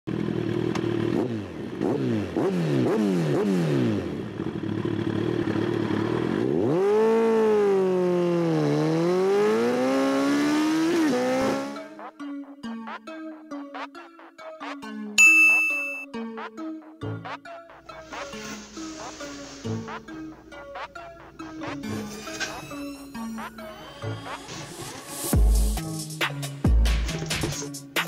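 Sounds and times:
motorcycle engine revving: 0:00.1 - 0:12.1.

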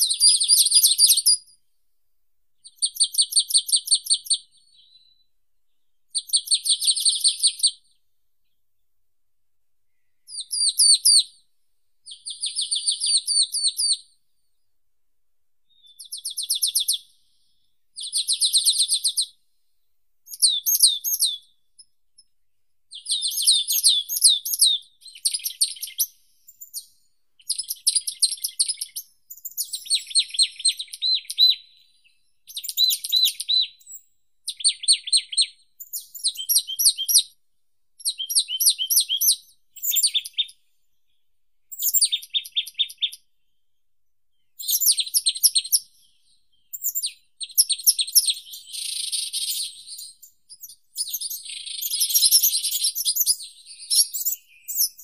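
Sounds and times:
songbird trilling: 0:27.4 - 0:31.8, 0:32.5 - 0:37.4, 0:38.0 - 0:40.6, 0:46.7 - 0:55.0.

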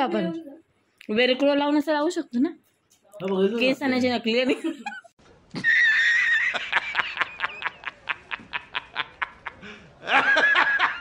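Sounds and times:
man laughing hard: 0:05.6 - 0:11.0.

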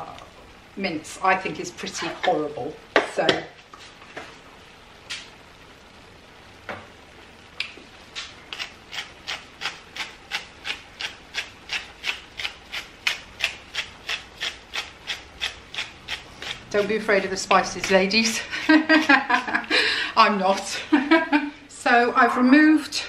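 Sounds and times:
pepper grinder grinding: 0:08.5 - 0:19.5.

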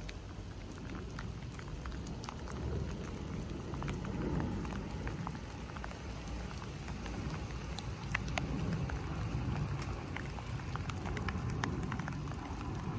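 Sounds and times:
low outdoor rumble: 0:00.0 - 0:12.9
rain drops ticking: 0:00.0 - 0:12.9.

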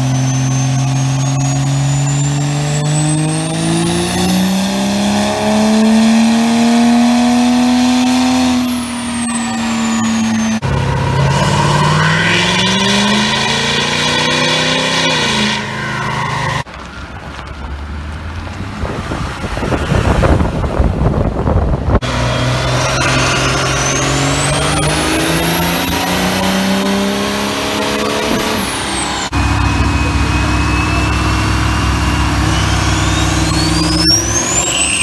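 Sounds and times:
turbo whistle: 0:00.0 - 0:03.3, 0:08.0 - 0:16.6, 0:22.1 - 0:35.0
diesel truck engine revving: 0:00.0 - 0:16.7, 0:17.7 - 0:35.0.

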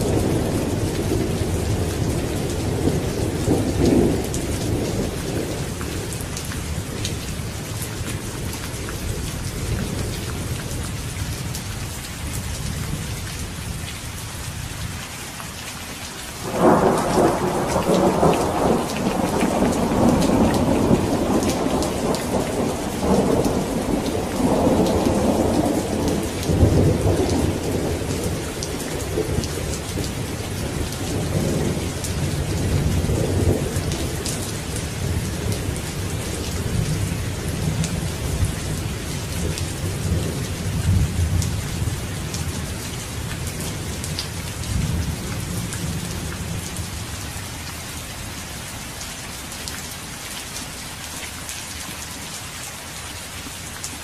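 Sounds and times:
thunder rumbling: 0:00.0 - 0:10.8, 0:16.4 - 0:47.0
steady rain: 0:00.0 - 0:54.0.

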